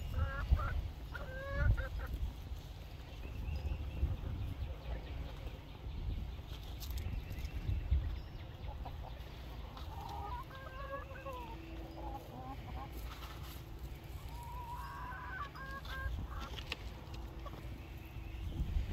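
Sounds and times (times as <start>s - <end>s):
chickens clucking: 0.0s - 18.9s.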